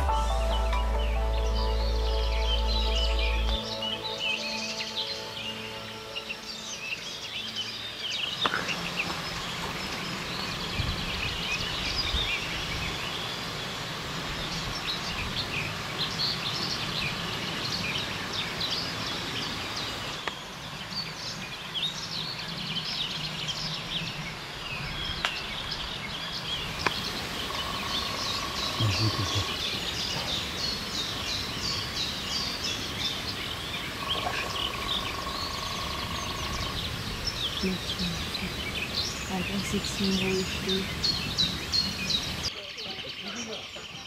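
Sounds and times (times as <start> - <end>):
outdoor hiss: 0.0 - 44.0
small birds singing: 0.0 - 44.0
faint low hum: 28.6 - 29.6.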